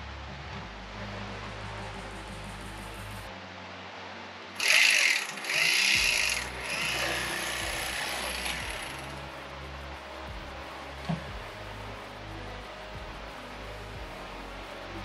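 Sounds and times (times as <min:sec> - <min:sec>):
background music: 0:00.0 - 0:15.0
electric knife running: 0:04.6 - 0:09.2.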